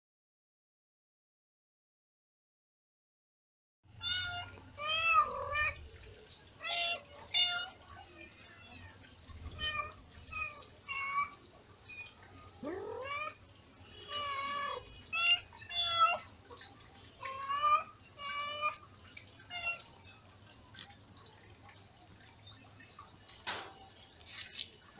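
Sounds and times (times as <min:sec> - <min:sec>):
kittens mewing: 0:12.5 - 0:13.4.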